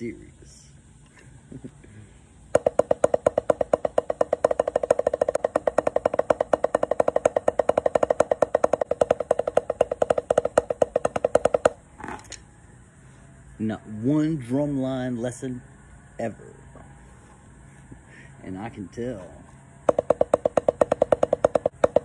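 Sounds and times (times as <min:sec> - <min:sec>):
drumsticks on rubber practice pad: 0:02.5 - 0:12.4, 0:19.8 - 0:22.0.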